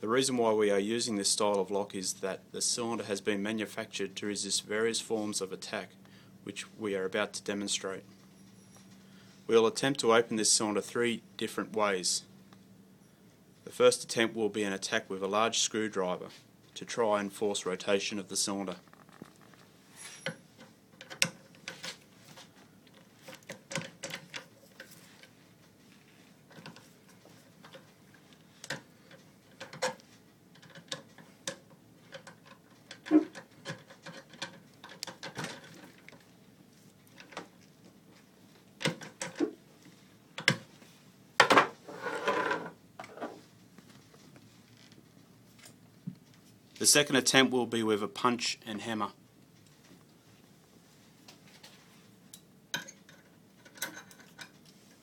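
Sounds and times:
metal clicks and knocks: 28.6s - 36.2s.

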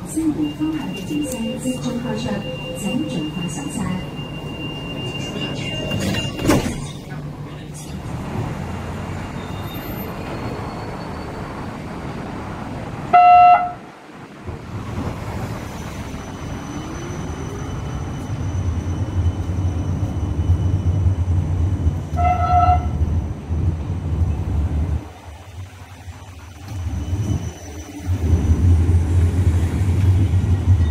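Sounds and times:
tram whine and rumble: 0.0s - 30.9s
tram horn toot: 0.2s - 6.2s, 13.1s - 13.9s, 22.0s - 23.1s.

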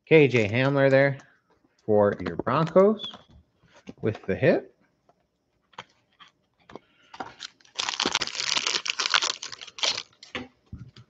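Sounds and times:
card pack wrapper tearing: 7.4s - 10.2s.

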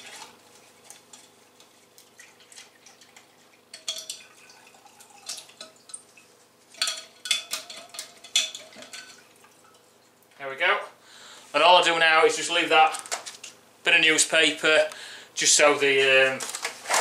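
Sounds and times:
liquid dripping and sloshing: 0.0s - 10.4s.

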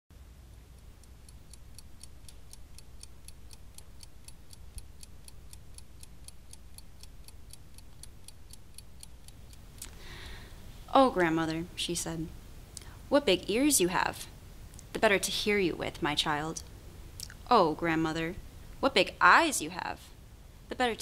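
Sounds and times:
steady ticking: 0.5s - 12.1s.

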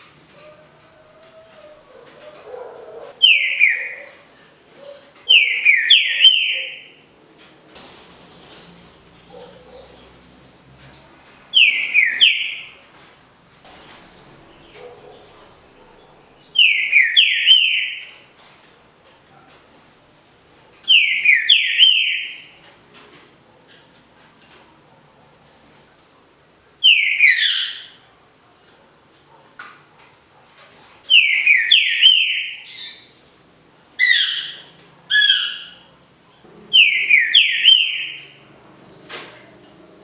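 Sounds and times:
bird singing whistled phrases: 3.2s - 4.2s, 16.6s - 18.0s, 31.1s - 32.6s, 36.8s - 38.2s.

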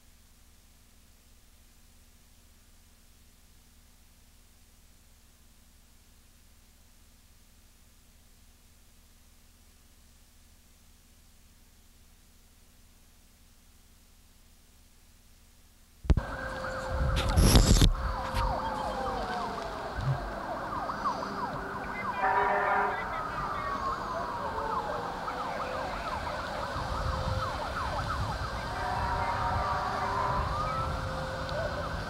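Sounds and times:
horn blast: 16.1s - 24.2s, 28.5s - 31.6s
sirens wailing: 16.2s - 32.0s.

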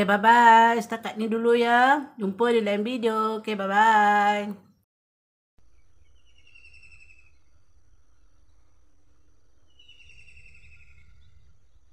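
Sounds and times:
bird trilled call: 5.7s - 7.4s, 9.7s - 11.4s.

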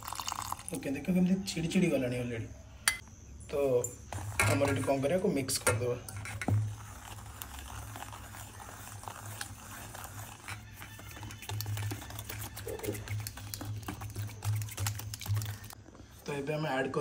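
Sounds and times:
whisk clicking in steel bowl: 7.1s - 15.8s.

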